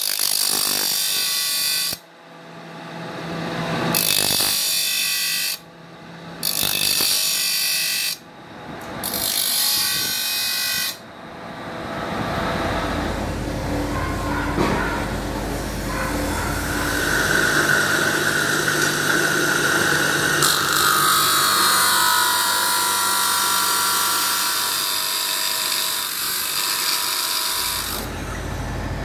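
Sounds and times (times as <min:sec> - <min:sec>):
knife grinding on grinder wheel: 0:03.8 - 0:05.6, 0:06.4 - 0:08.2, 0:09.0 - 0:11.0, 0:15.9 - 0:28.2.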